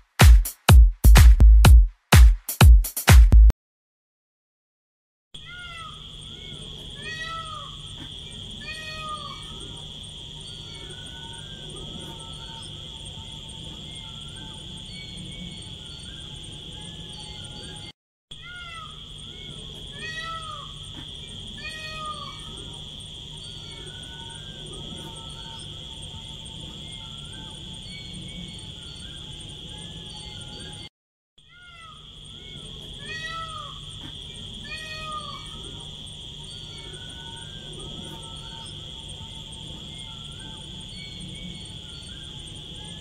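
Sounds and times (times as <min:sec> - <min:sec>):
rising and falling animal calls: 0:05.4 - 0:15.2
high insect drone: 0:05.4 - 0:43.0.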